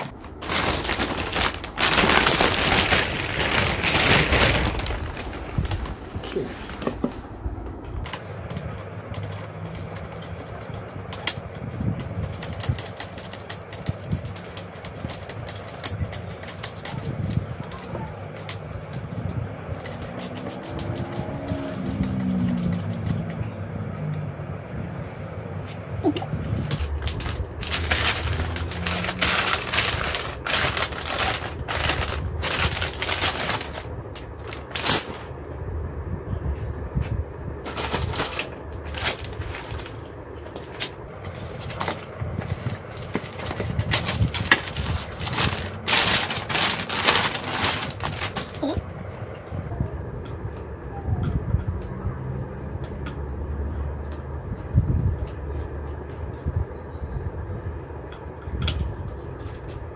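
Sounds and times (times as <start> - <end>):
plastic bag crinkling: 0.0 - 7.2, 26.5 - 35.4, 37.6 - 48.8
steady low hum: 0.0 - 59.9.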